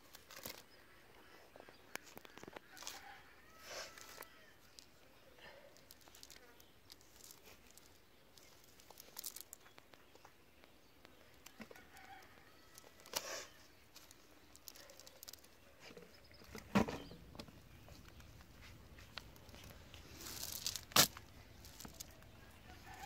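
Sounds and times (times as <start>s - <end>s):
net mesh rustling: 5.8s - 9.6s, 13.9s - 15.5s, 18.7s - 23.0s.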